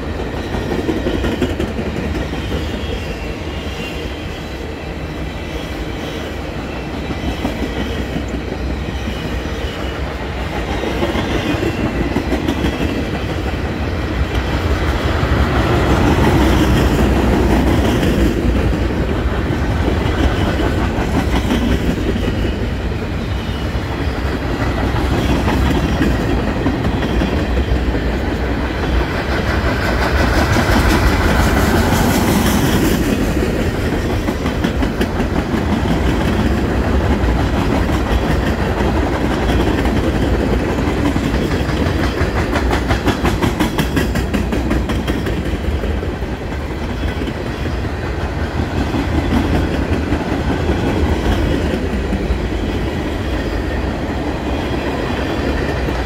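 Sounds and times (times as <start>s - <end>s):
train wheels clicking and rumbling: 0.0s - 56.0s.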